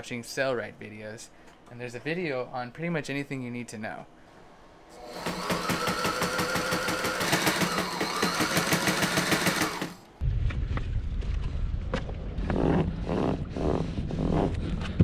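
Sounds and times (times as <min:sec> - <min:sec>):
sewing machine stitching: 0:05.0 - 0:10.0.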